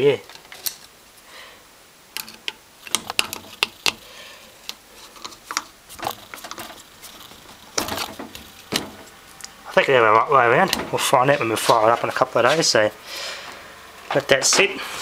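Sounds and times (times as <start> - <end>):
plastic fan blade clicking: 2.2 - 9.2.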